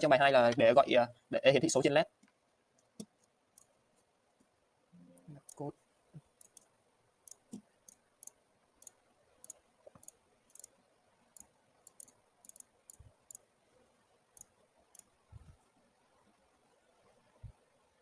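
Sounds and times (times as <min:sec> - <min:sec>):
computer mouse clicking: 0:05.2 - 0:05.6, 0:06.2 - 0:13.5, 0:14.3 - 0:15.1.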